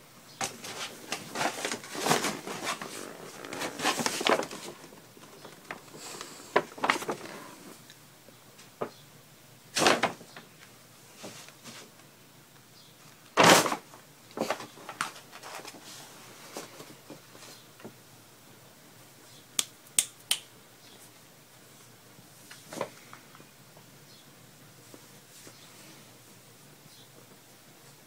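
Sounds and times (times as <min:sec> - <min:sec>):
paper bag crinkling: 0:00.4 - 0:07.8.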